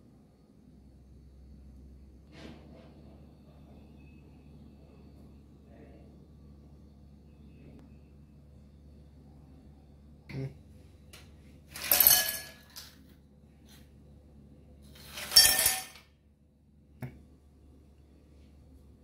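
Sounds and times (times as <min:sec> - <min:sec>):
ice cubes clattering into glass: 0:11.8 - 0:12.9, 0:15.0 - 0:16.0.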